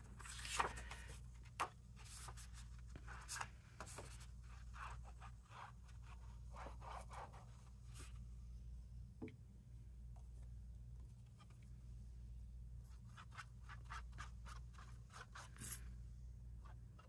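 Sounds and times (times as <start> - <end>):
paper handled: 0.0 - 4.2.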